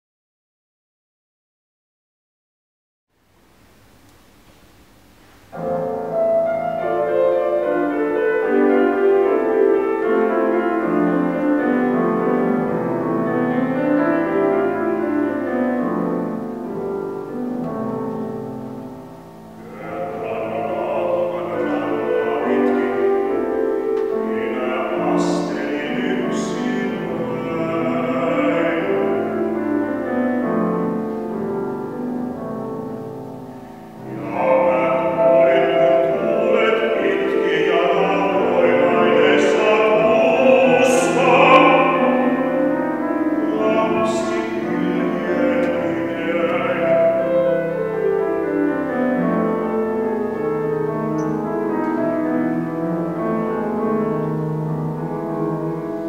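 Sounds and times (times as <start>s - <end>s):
grand piano playing: 4.0s - 56.0s
baritone voice singing: 19.6s - 29.7s, 34.0s - 47.4s.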